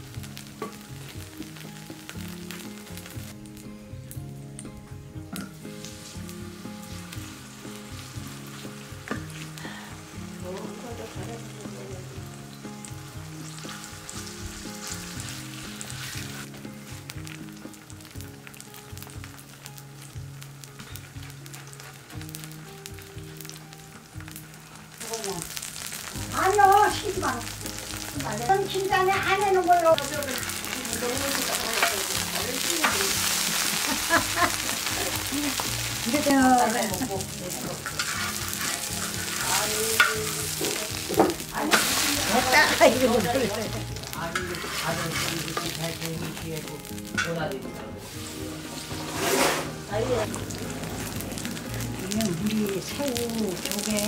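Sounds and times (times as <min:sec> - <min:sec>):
batter sizzling in hot oil: 0:00.0 - 0:54.0
low background music: 0:00.0 - 0:54.0
spatulas scraping and tapping metal: 0:31.7 - 0:32.2, 0:32.8 - 0:33.2, 0:37.7 - 0:41.9, 0:44.3 - 0:45.8, 0:48.7 - 0:49.8.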